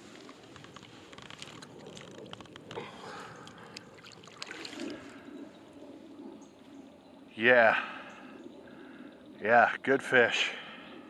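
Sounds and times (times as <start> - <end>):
shallow water sloshing and splashing: 0.0 - 5.8
water dripping: 1.9 - 5.2.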